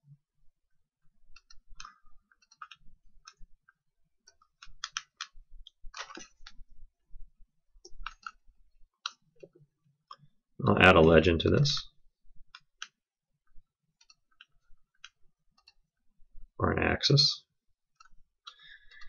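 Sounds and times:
computer mouse clicks: 1.3 - 3.5, 4.2 - 6.6, 7.8 - 8.4, 9.0 - 10.3, 12.5 - 13.0, 14.0 - 15.8, 18.0 - 19.0.

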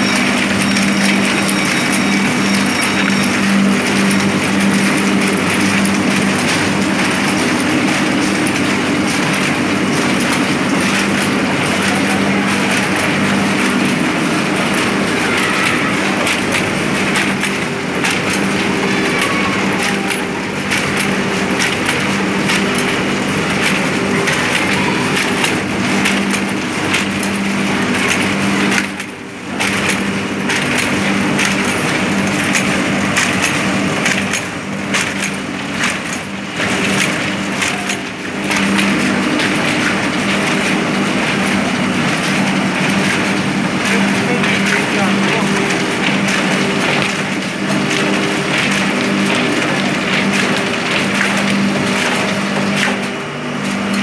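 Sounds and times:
motor hum: 0.0 - 54.0
sewing machine clatter: 0.0 - 54.0.

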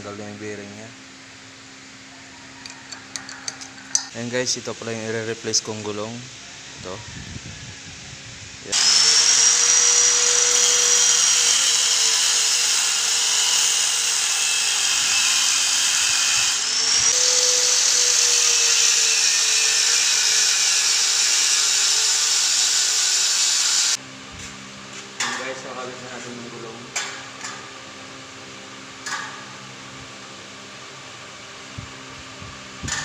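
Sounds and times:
angle grinder cutting metal: 8.7 - 24.0.

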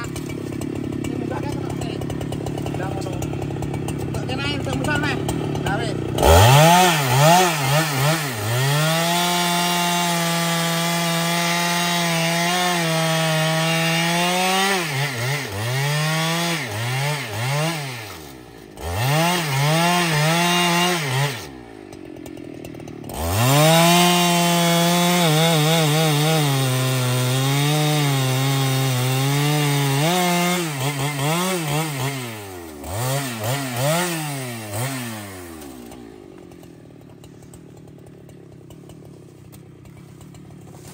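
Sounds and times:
chainsaw cutting log: 0.0 - 40.9.

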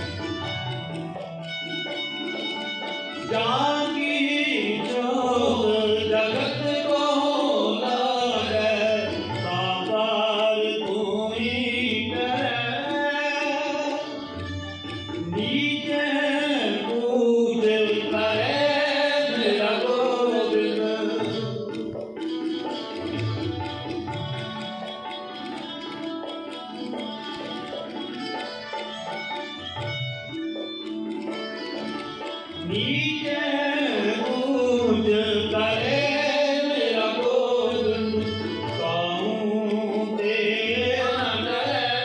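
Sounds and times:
harmonium: 0.0 - 42.0
tabla rhythm: 0.0 - 42.0
men singing a hymn: 39.0 - 42.0.

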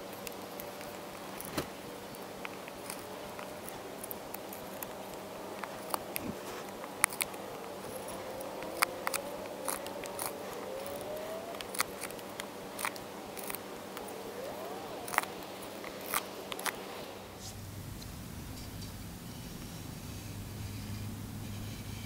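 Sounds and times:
knife carving wood: 0.0 - 17.1.

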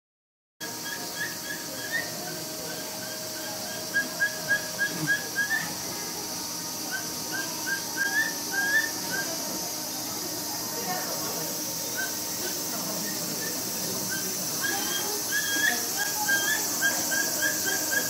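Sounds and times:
capybara chirping calls: 0.7 - 5.8, 6.9 - 9.4, 11.8 - 18.0.

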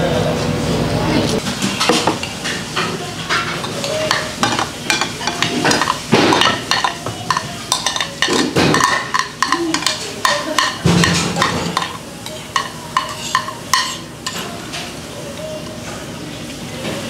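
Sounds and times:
metal spoon scraping a bowl: 3.6 - 14.5.

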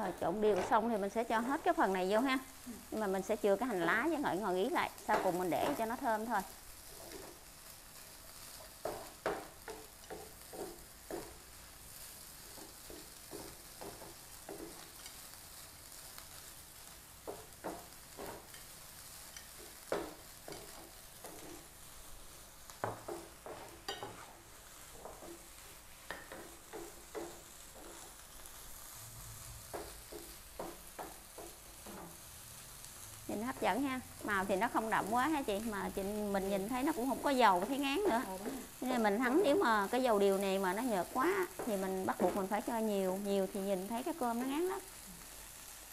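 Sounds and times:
rice sizzling in a frying pan: 0.0 - 45.9
spatula scraping and tapping pan: 0.1 - 2.2, 5.0 - 32.3, 36.0 - 42.8.

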